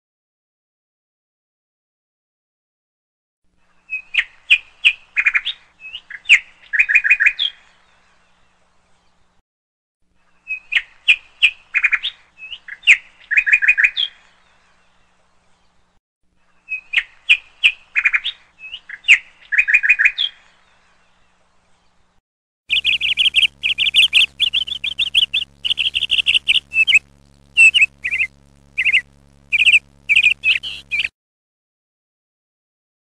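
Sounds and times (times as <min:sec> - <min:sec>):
faint low hum: 0:22.7 - 0:31.1
small birds chirping: 0:22.7 - 0:31.1.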